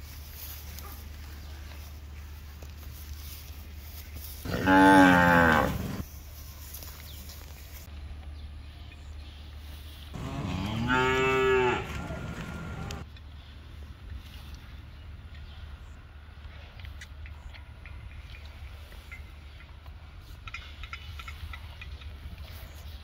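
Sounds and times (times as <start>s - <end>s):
cattle mooing: 4.4s - 6.0s, 10.2s - 13.0s.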